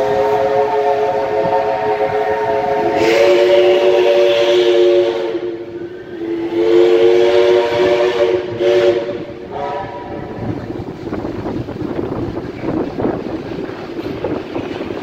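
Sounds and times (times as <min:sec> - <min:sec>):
steam locomotive whistle: 0:00.0 - 0:10.5
train carriages rumbling past: 0:00.0 - 0:15.0.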